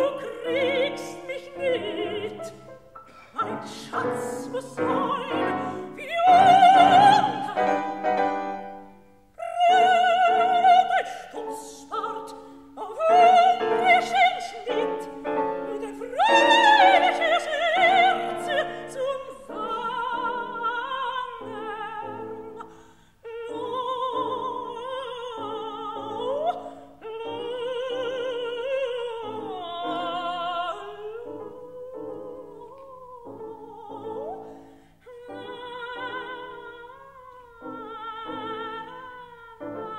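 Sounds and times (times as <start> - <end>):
piano accompaniment: 0.0 - 39.9
soprano singing: 0.0 - 39.9.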